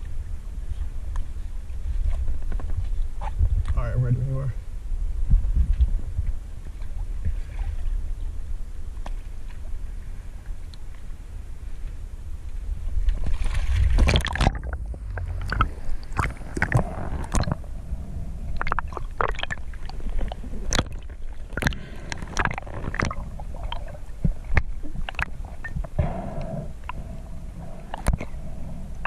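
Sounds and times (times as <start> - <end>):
low rumble: 0.0 - 29.0
water sloshing and gurgling: 5.2 - 11.0, 12.5 - 29.0
sharp clicks and pops: 14.0 - 17.6, 20.2 - 23.9, 27.8 - 28.4.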